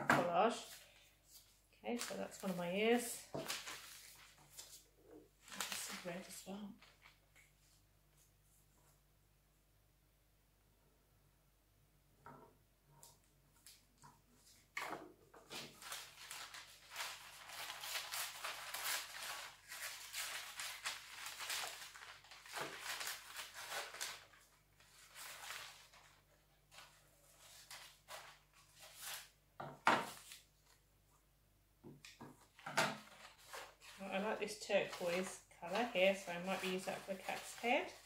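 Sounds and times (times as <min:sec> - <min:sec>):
newspaper pages rustling: 0:00.4 - 0:08.3, 0:15.4 - 0:29.4, 0:30.0 - 0:30.9, 0:32.4 - 0:38.0.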